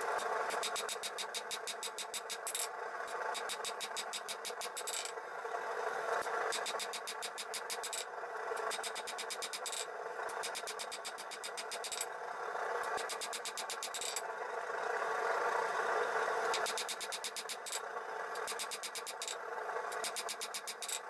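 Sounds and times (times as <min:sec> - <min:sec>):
hammer striking steel on anvil: 0:03.3 - 0:05.1, 0:06.6 - 0:12.1, 0:13.0 - 0:14.2, 0:18.4 - 0:19.4, 0:20.0 - 0:21.0.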